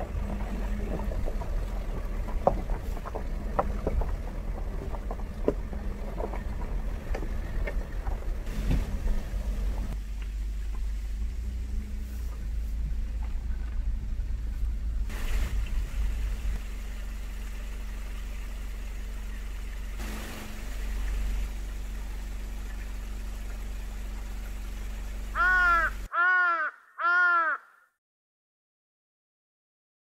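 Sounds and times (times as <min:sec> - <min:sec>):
stream flowing: 0:00.0 - 0:11.2, 0:15.1 - 0:26.1
car driving on gravel: 0:00.0 - 0:26.1
crow cawing: 0:25.4 - 0:28.0.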